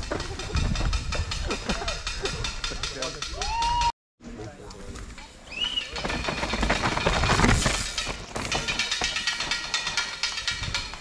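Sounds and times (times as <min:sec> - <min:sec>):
bike clattering: 0:05.1 - 0:11.0
bike tyres crunching: 0:05.5 - 0:10.4.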